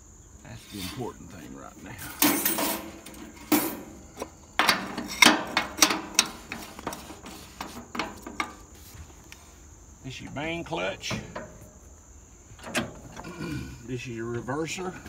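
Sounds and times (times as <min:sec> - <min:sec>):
metal cap clicking and clanking: 0:01.9 - 0:08.8, 0:11.0 - 0:11.8, 0:12.6 - 0:13.5.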